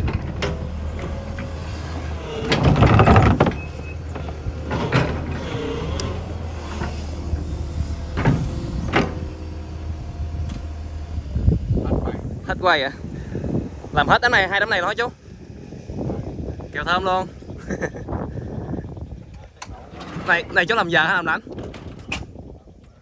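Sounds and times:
excavator clanking and knocking: 0.0s - 11.5s, 18.1s - 22.6s
diesel engine humming: 0.0s - 21.3s.

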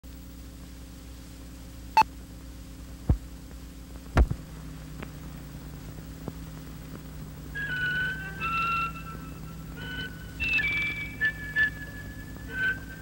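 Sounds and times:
film projector hum: 0.0s - 13.0s
loud pops and deep thumps: 4.1s - 7.1s.

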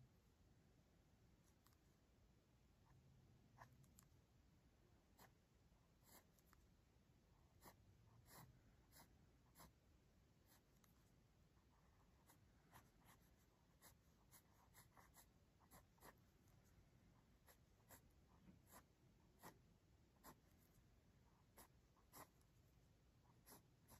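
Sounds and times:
pencil sketching on paper: 5.1s - 6.6s, 7.4s - 9.8s, 10.4s - 23.9s.

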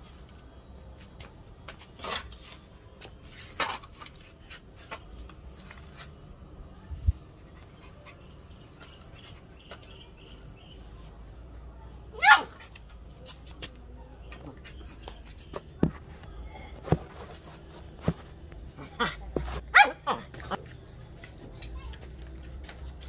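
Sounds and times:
broom sweeping concrete floor: 1.8s - 7.4s.

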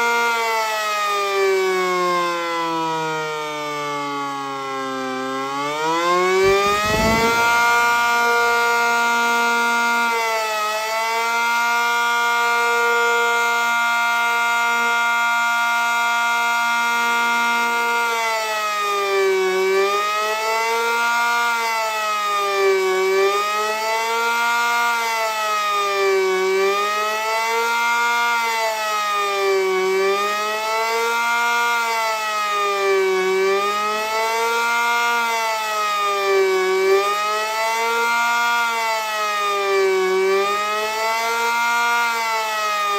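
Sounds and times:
siren tone and wail: 6.3s - 9.9s.

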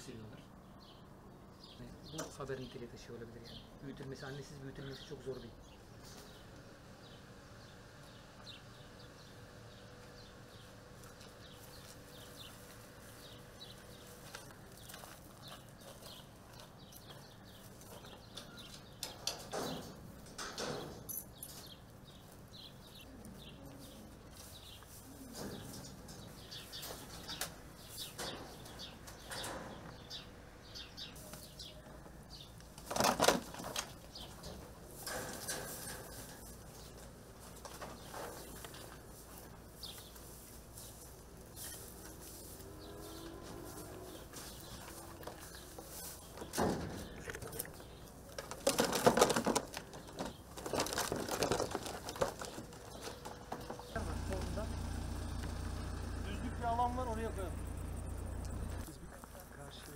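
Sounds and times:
wire mesh rattling: 18.6s - 21.7s, 32.7s - 39.0s, 40.8s - 58.8s
birds' wings flapping: 48.3s - 53.4s.

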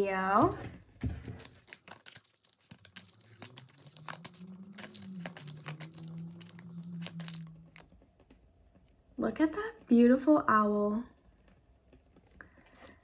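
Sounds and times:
faint low hum: 0.0s - 13.0s
cards being shuffled by hand: 1.1s - 7.9s.

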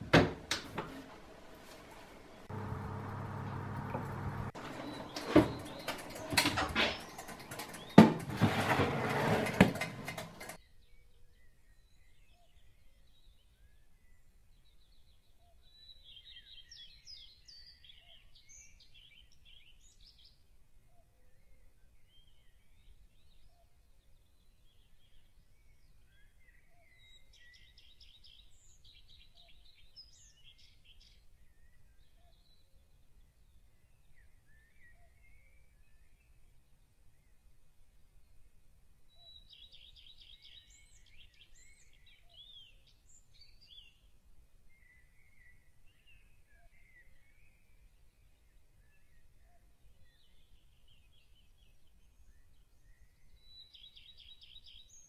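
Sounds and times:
clattering and knocks: 0.0s - 10.6s
oven door opening: 0.0s - 10.6s.

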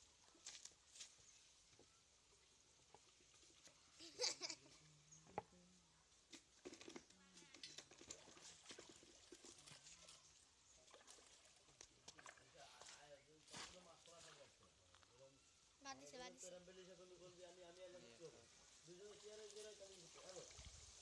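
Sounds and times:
splashing of shallow water: 7.8s - 14.6s.

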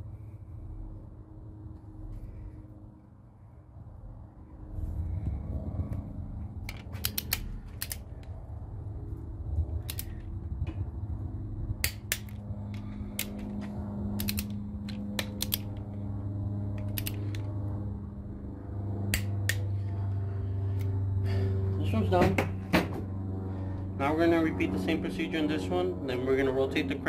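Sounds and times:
low steady hum: 0.0s - 27.0s
torque wrench clicking: 6.7s - 8.0s, 9.8s - 10.1s, 14.2s - 15.7s, 16.8s - 17.4s.

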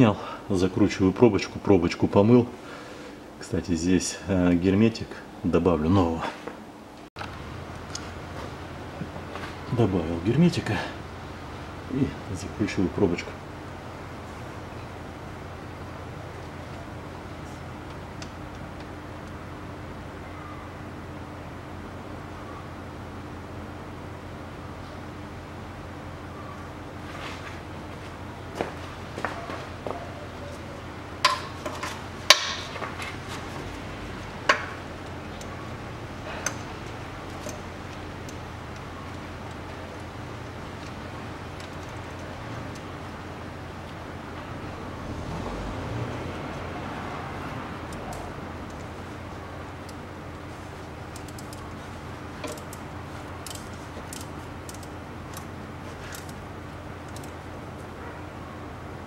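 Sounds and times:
steady low hum: 0.0s - 59.0s
ratchet wrench clicking on metal: 51.1s - 51.6s, 53.4s - 55.5s.

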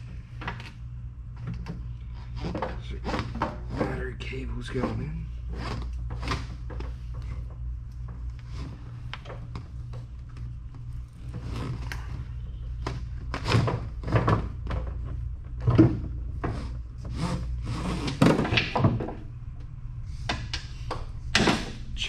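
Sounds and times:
low hum: 0.0s - 22.0s
cables scraping in plastic tube: 2.0s - 7.4s, 8.4s - 9.6s, 10.8s - 14.7s, 16.4s - 18.6s.

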